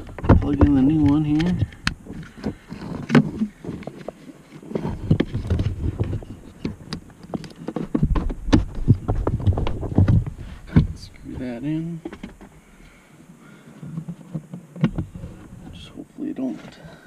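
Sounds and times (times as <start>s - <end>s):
plastic parts clicking and knocking: 0.0s - 11.0s.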